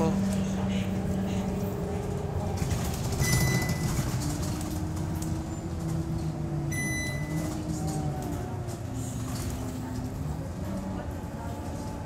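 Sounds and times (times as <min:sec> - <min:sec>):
bus engine and road rumble: 0:00.0 - 0:12.0
short electronic beeps: 0:06.7 - 0:07.4.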